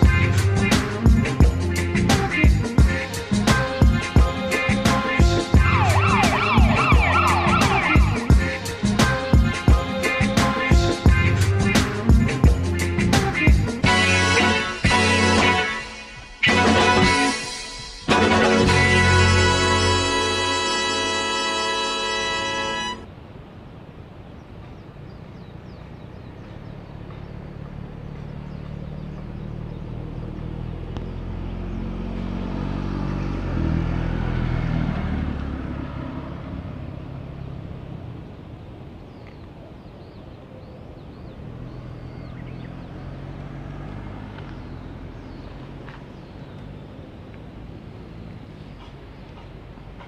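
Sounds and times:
vehicle engine driving past: 5.6s - 9.0s, 24.6s - 39.3s, 41.0s - 50.0s.

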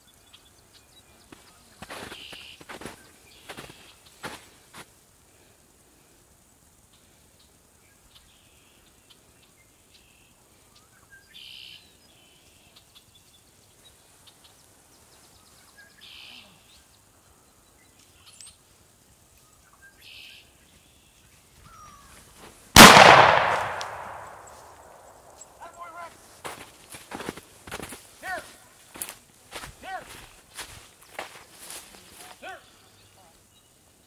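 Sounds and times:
shotgun blast: 22.8s - 25.0s.

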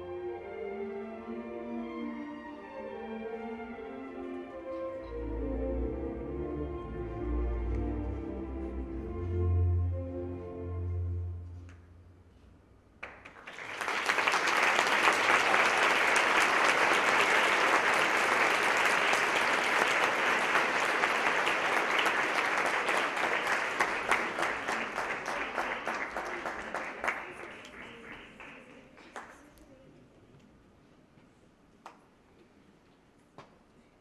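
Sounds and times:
audience applauding: 13.0s - 29.5s.

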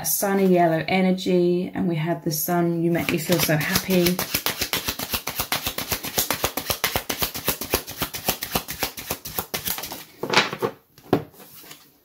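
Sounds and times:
cards being shuffled: 3.0s - 10.1s.

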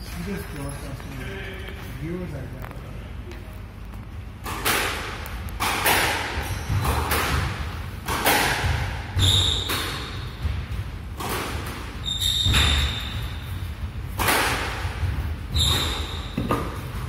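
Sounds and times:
ball striking court walls: 4.4s - 17.0s
racket hitting squash ball: 4.4s - 17.0s
sneakers squeaking on wooden floor: 6.3s - 7.5s, 8.6s - 10.7s, 11.9s - 13.7s, 15.1s - 17.0s.

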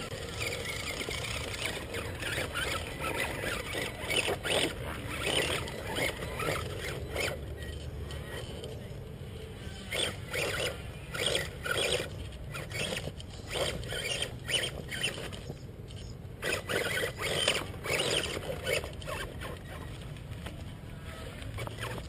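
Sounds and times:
electric motor whining: 0.0s - 15.6s, 16.4s - 20.0s
tyres scrabbling on stones: 0.1s - 8.8s.

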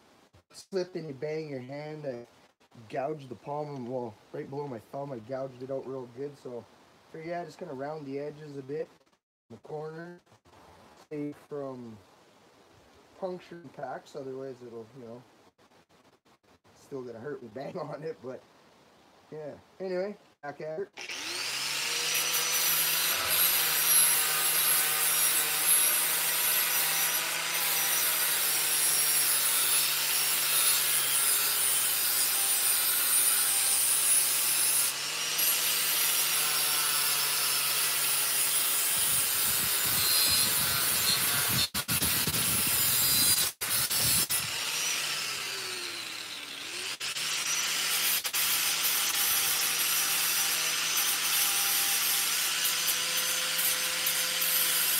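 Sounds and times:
angle grinder grinding steel: 21.0s - 54.9s.

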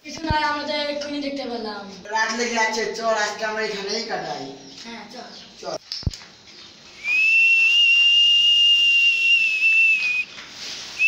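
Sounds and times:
high whistle tone: 7.0s - 10.3s.

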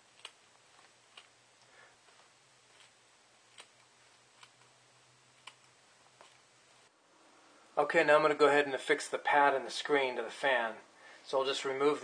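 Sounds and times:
scissors snipping: 0.0s - 1.4s, 2.6s - 4.7s, 5.4s - 6.4s.

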